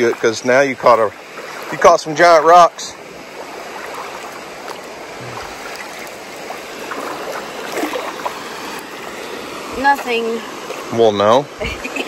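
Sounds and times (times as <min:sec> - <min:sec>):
creek water running over rocks: 0:00.0 - 0:12.0
net splashing through water: 0:01.2 - 0:09.6.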